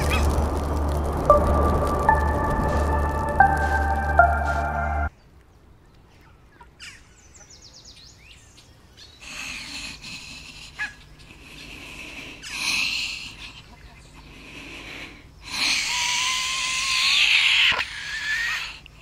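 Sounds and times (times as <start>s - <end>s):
music: 0.0s - 5.1s
raspy hissing breath: 9.2s - 13.5s, 14.2s - 16.0s.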